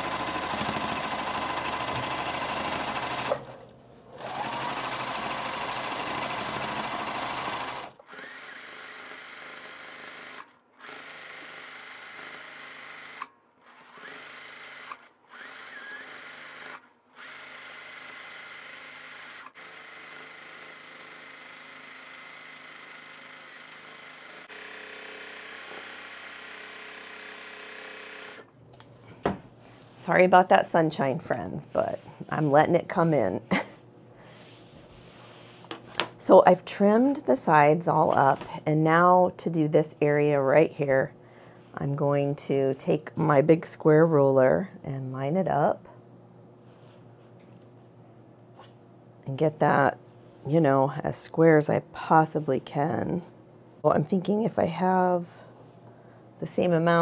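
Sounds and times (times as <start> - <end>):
sewing machine running: 0.0 - 28.5.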